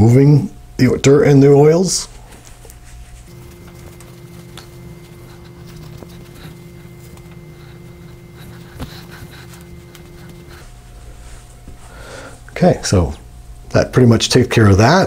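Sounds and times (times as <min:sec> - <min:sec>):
steady low hum: 0:00.0 - 0:15.0
cloth rubbing on scalp: 0:02.1 - 0:11.9.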